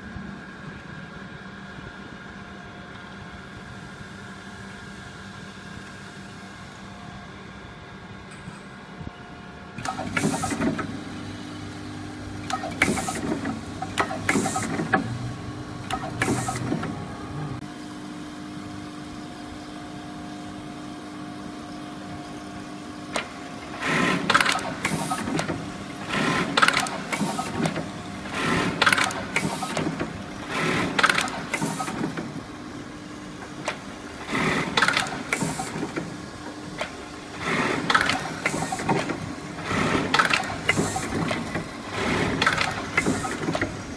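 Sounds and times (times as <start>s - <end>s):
machine hum: 0.0s - 43.9s
sewing machine stitching bursts: 9.8s - 11.0s, 12.4s - 15.2s, 15.8s - 17.0s, 23.7s - 32.2s, 34.2s - 35.9s, 37.3s - 43.8s.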